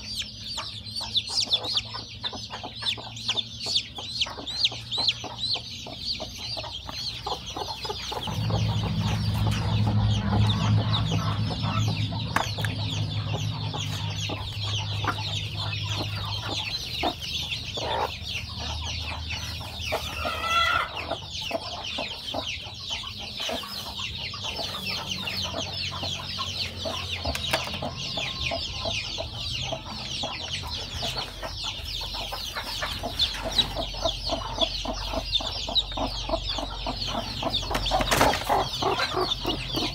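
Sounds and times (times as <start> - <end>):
low steady hum: 0.0 - 20.3
chicks peeping: 0.0 - 39.9.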